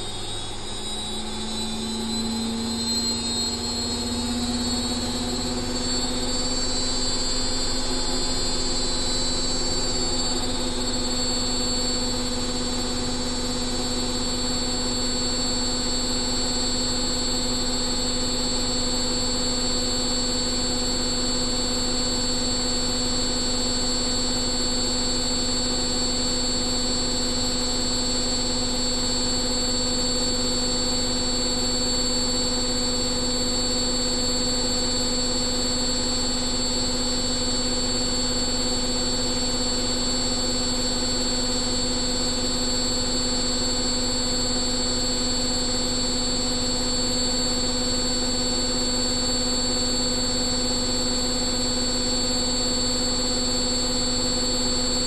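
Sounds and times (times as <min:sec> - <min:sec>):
washing machine spinning: 0:00.0 - 0:13.2.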